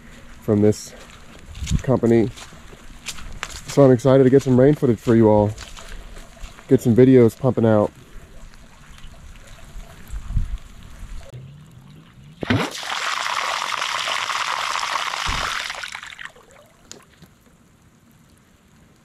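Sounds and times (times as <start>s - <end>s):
water pouring and splashing: 7.9s - 19.0s.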